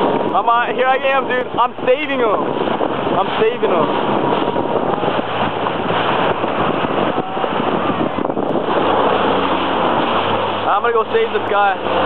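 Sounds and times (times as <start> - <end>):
jet ski engine humming: 0.0 - 12.0
water noise: 0.0 - 12.0
wind buffeting microphone: 0.0 - 12.0.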